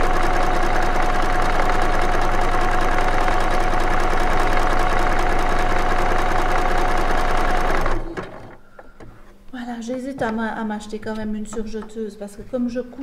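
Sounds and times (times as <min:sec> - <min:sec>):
sewing machine running: 0:00.0 - 0:08.6.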